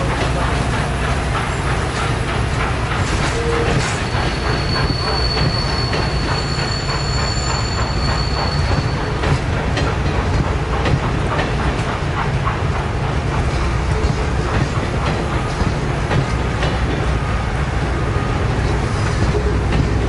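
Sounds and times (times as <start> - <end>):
continuous rail rumble: 0.0 - 20.0
train wheels clacking over rail joints: 0.0 - 20.0
high wheel squeal: 3.3 - 9.4.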